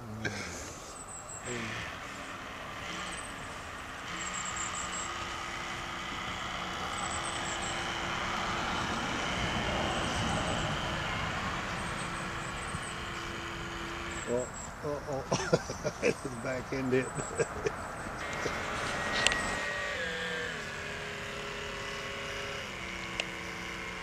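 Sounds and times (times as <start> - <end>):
electric motor humming: 0.0 - 24.0
steady rushing noise: 5.4 - 15.2.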